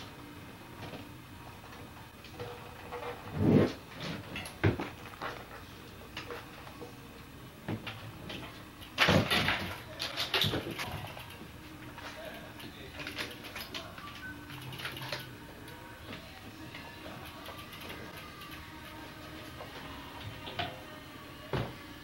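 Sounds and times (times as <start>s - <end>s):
folding bicycle clunks and knocks: 2.3s - 5.6s, 7.6s - 11.1s.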